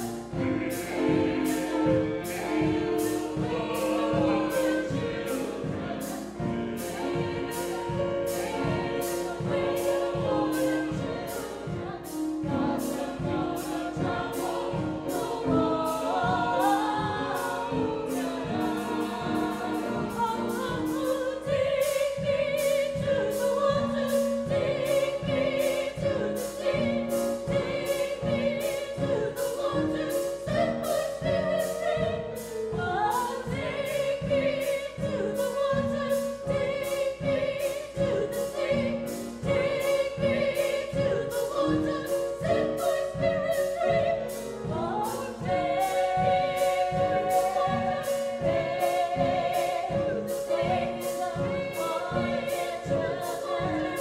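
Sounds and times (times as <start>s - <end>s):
choir singing in parts: 0.0s - 54.0s
grand piano accompaniment: 0.0s - 54.0s
steady beat: 33.2s - 54.0s.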